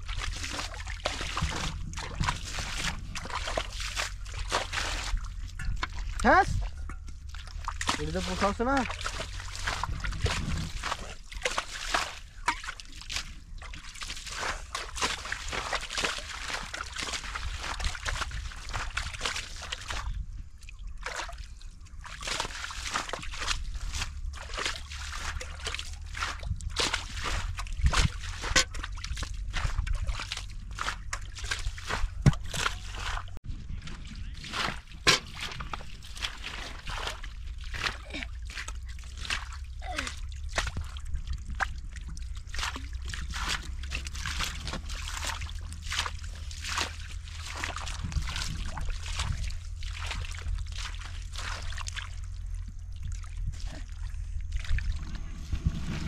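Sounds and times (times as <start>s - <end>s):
shallow water splashing: 0.0s - 56.0s.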